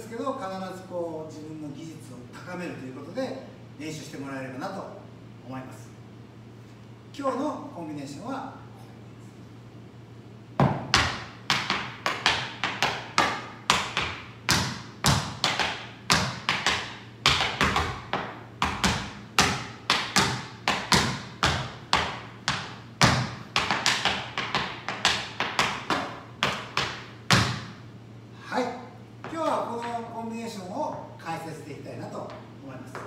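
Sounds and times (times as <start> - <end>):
tap shoes on wooden floor: 10.6 - 27.8, 29.2 - 30.1, 32.2 - 33.0.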